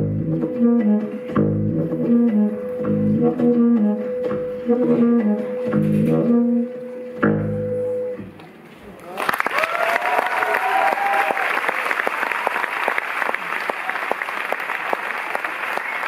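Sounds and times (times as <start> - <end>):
audience applauding: 9.0 - 16.0.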